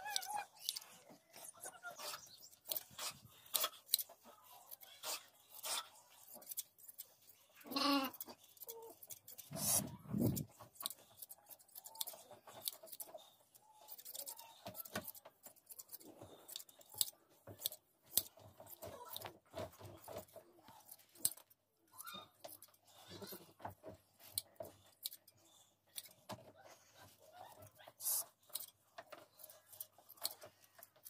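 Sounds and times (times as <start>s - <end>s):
scissors snipping wool: 0.0s - 0.9s, 2.5s - 13.2s, 13.8s - 22.8s, 24.2s - 26.4s, 27.0s - 31.0s.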